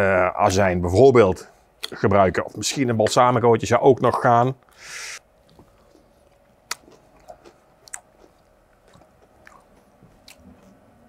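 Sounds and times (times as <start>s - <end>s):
chewing coleslaw: 5.4s - 11.0s.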